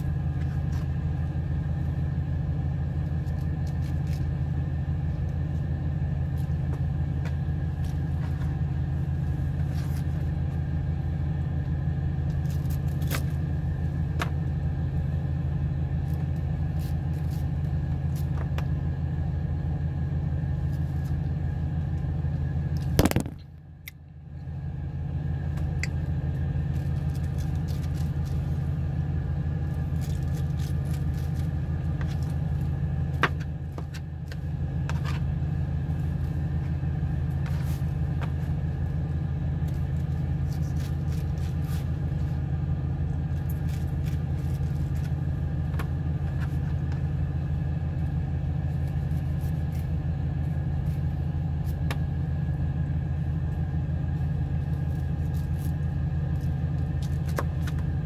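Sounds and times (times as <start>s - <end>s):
steady low rumble: 0.0s - 58.0s.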